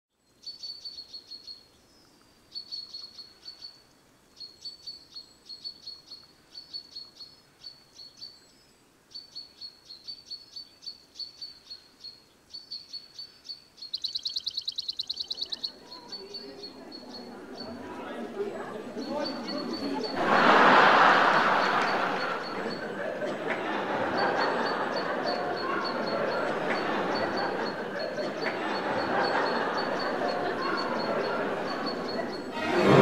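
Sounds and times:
crickets chirping: 13.8 - 32.5.

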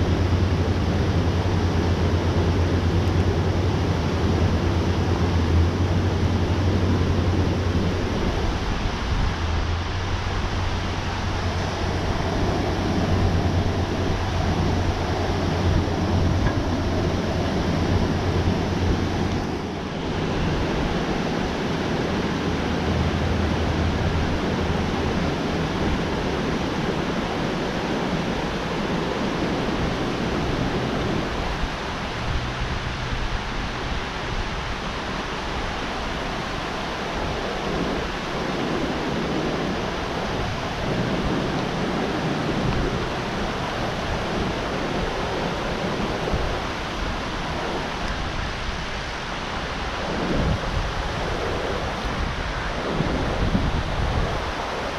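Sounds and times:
low rumble: 0.0 - 34.8
water rushing through spillway: 0.0 - 54.9.

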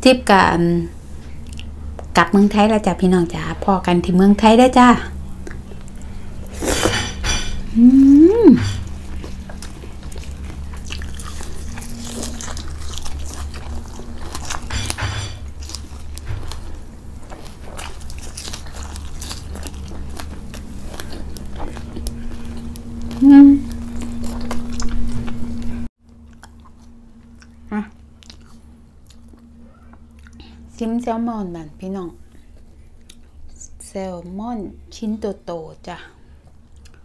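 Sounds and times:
steady low hum: 0.0 - 37.0
person chewing with wet mouth sounds: 1.3 - 2.1, 5.3 - 6.9, 8.1 - 30.7, 32.3 - 33.5, 36.4 - 37.0
person humming mmm: 7.7 - 8.9, 21.6 - 24.5.

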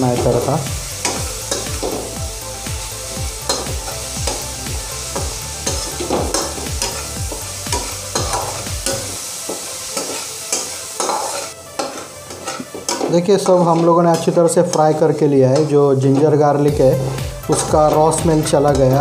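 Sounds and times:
paste sizzling in hot oil: 0.0 - 19.0
metal spatula scraping pan: 5.6 - 19.0.

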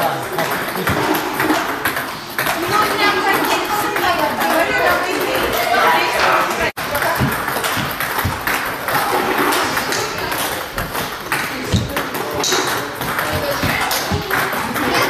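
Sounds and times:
table tennis balls being hit: 0.0 - 15.0.

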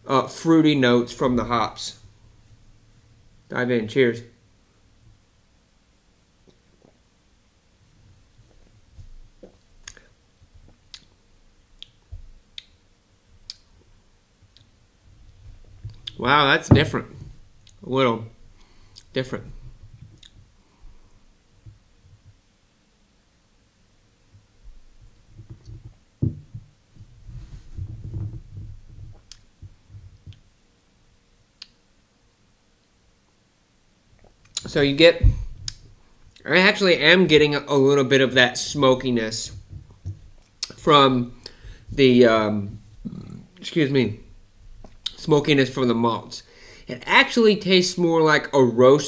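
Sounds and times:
mouth clicks and lip smacks: 9.4 - 10.1, 10.7 - 11.2, 11.8 - 12.8, 13.4 - 13.7, 15.8 - 16.2, 20.0 - 20.5, 29.0 - 29.5, 31.6 - 31.8, 34.2 - 34.7, 35.5 - 36.4, 40.4 - 40.8, 44.8 - 45.2
faint low thuds: 15.3 - 17.5, 24.3 - 30.5, 34.7 - 36.0.

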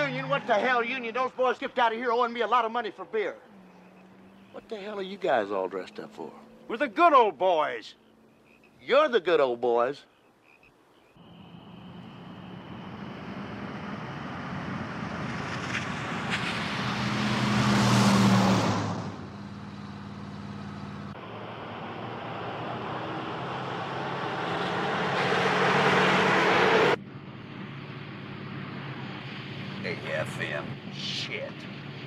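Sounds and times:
car passing at speed: 11.2 - 31.0.

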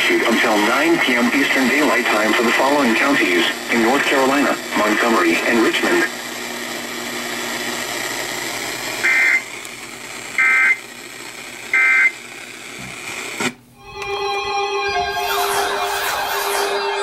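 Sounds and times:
radio hiss: 0.0 - 13.6
buzzy warbling data bursts: 9.0 - 9.5, 10.4 - 10.8, 14.9 - 17.0.

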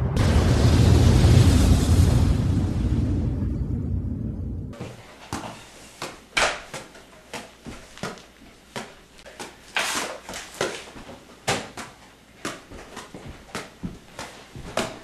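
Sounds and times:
shoe scuffs: 4.8 - 6.8.

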